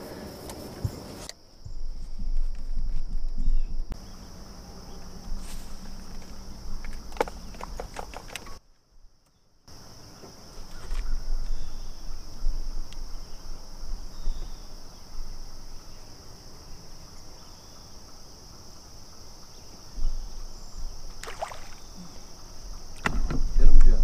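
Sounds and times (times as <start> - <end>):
high-pitched drone of insects: 0.0 - 8.6, 9.7 - 24.0.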